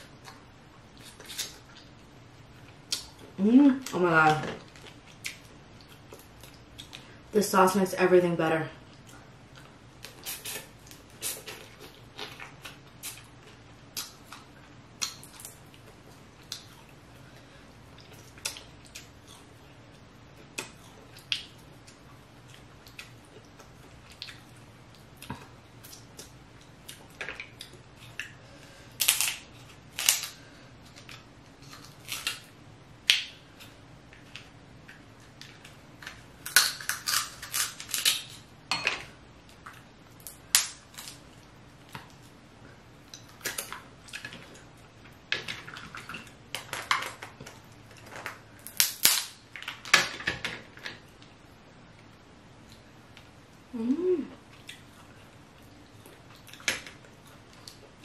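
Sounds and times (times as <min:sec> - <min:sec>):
person chewing: 0:08.9 - 0:17.0
crab shell cracking: 0:29.0 - 0:30.4, 0:36.0 - 0:38.4.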